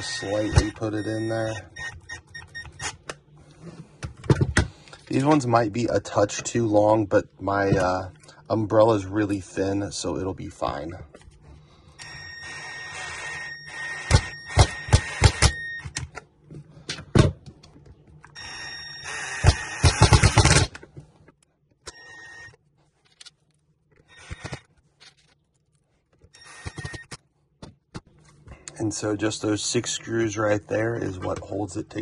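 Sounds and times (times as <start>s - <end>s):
impact driver whirring: 12.5s - 15.7s, 19.0s - 20.7s.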